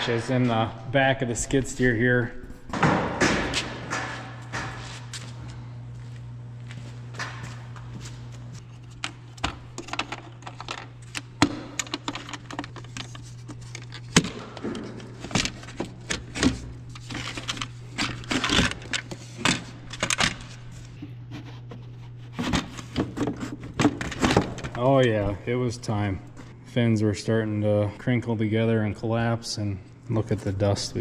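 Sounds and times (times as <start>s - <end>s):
steady low hum: 0.0s - 31.0s
clicks and plastic rattling: 9.0s - 20.6s.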